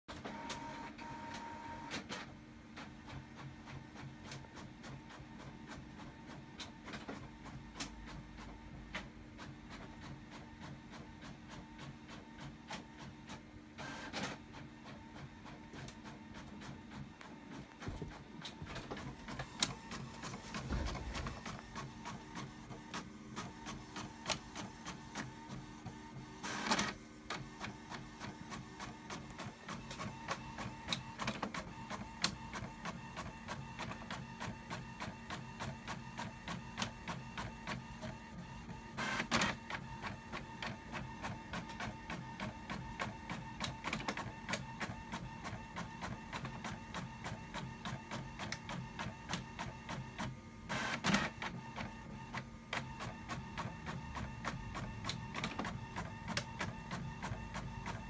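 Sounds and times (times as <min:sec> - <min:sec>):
printer humming: 0:00.1 - 0:58.0
printer mechanical strokes: 0:15.7 - 0:58.0.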